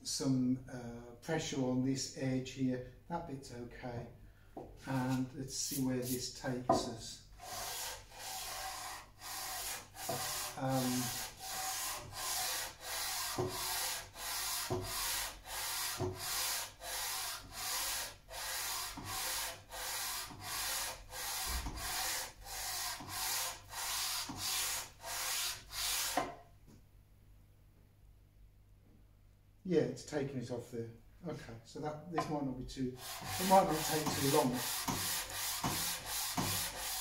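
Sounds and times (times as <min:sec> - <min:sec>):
metal scraping on sandpaper: 0:04.9 - 0:06.3, 0:07.4 - 0:26.2, 0:33.0 - 0:37.0.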